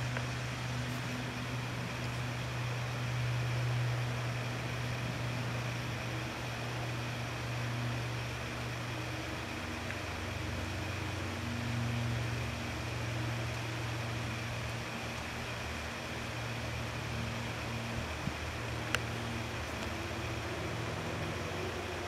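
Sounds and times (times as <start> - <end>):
constant hiss: 0.0 - 22.0
low mechanical hum: 0.0 - 22.0.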